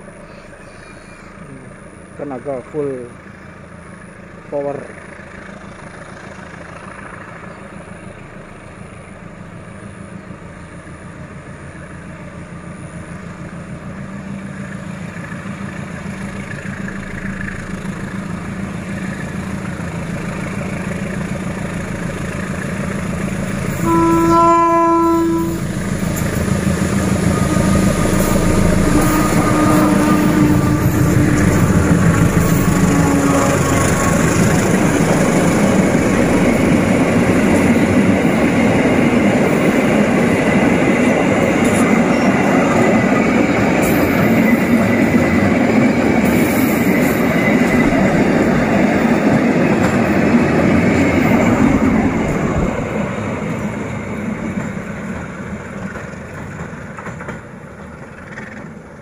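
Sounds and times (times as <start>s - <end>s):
diesel locomotive engine: 0.0s - 59.0s
train wheels: 3.7s - 24.4s, 25.0s - 59.0s
train horn blast: 23.7s - 25.8s, 27.2s - 34.4s.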